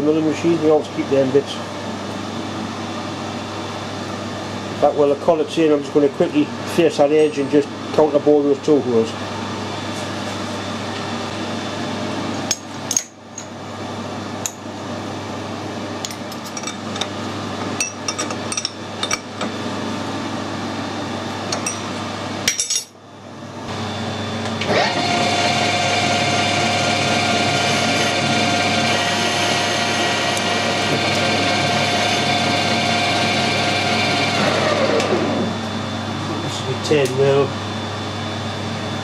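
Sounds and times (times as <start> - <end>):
shop hum: 0.0 - 39.0
metal tools clinking and knocking: 22.5 - 22.9
lathe spindle whine: 23.7 - 39.0.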